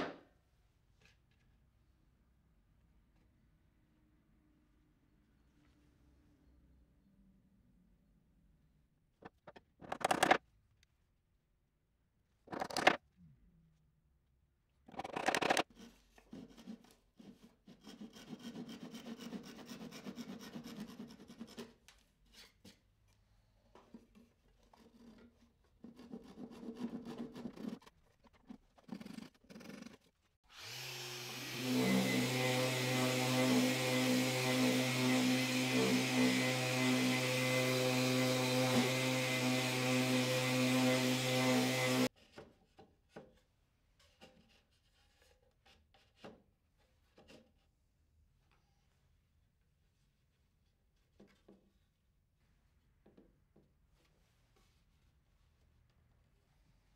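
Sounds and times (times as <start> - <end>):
orbital sander humming: 30.6 - 42.1.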